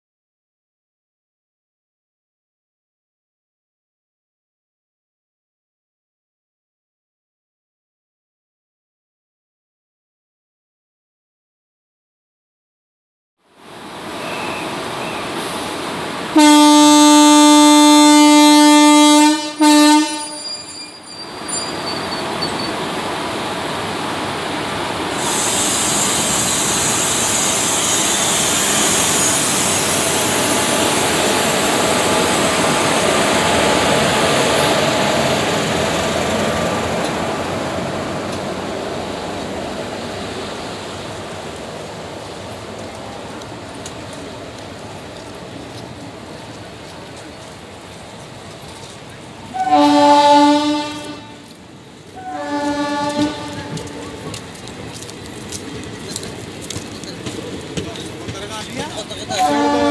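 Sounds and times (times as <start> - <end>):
passing train rumble: 13.5 - 59.9
electric locomotive horn: 16.3 - 21.0, 49.5 - 51.5, 52.2 - 54.3, 59.3 - 59.9.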